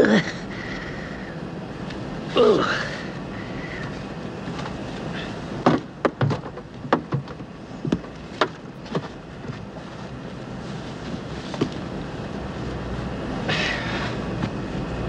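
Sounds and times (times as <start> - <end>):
airliner cabin drone: 0.0 - 15.0
knocks and clunks in lavatory: 5.6 - 9.7.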